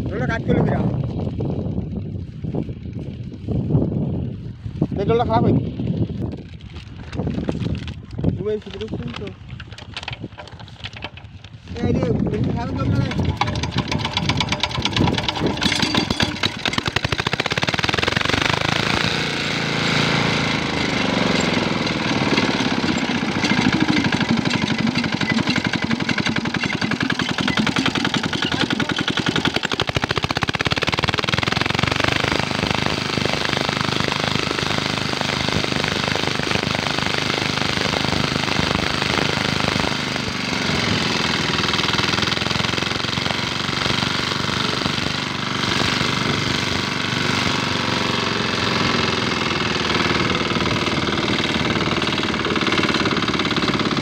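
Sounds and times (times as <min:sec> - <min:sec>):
diesel engine knocking: 0:12.5 - 0:19.2, 0:20.4 - 0:54.0.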